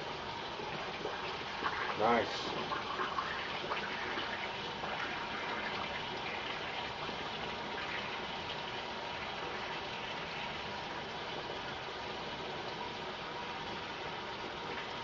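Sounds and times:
water tap running: 0.0 - 15.0.

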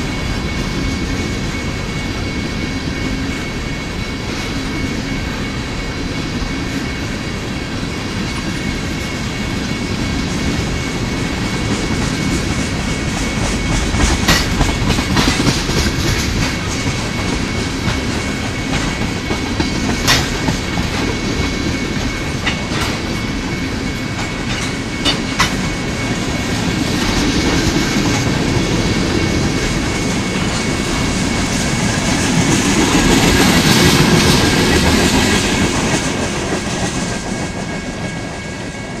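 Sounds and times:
train wheels rumbling on rail: 0.0 - 39.0.

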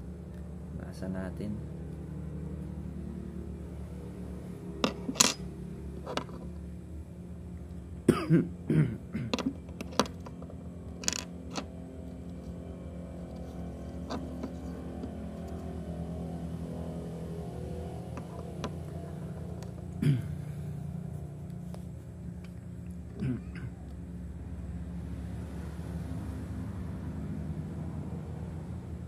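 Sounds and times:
small reel parts clicking: 9.3 - 11.7.

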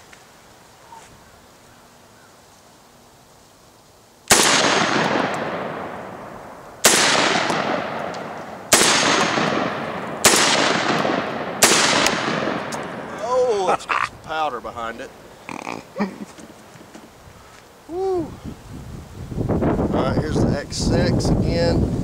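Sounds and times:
shotgun blasts with echo: 4.3 - 13.2.

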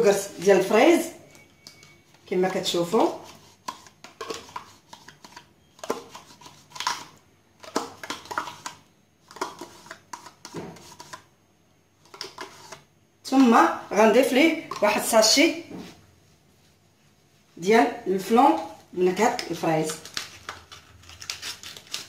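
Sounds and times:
spoon scraping a plastic cup: 1.2 - 11.3, 12.0 - 13.5, 19.2 - 22.0.

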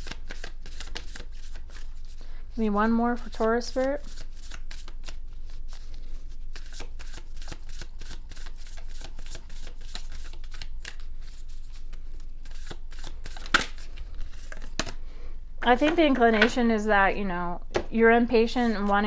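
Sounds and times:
cards being shuffled: 0.0 - 2.2, 3.2 - 15.0.

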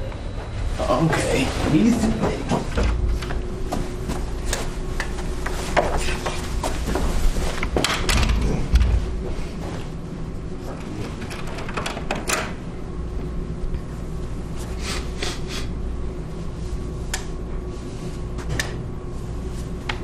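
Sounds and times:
low room hum: 0.0 - 20.0
footstep: 1.6 - 7.9
door clicks and knocks: 7.8 - 9.0, 11.2 - 12.6.

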